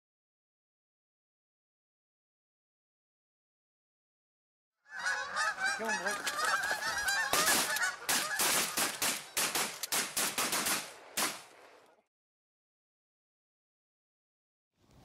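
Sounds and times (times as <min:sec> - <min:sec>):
geese honking: 0:04.9 - 0:10.6
shotgun shots with echo: 0:07.3 - 0:11.5.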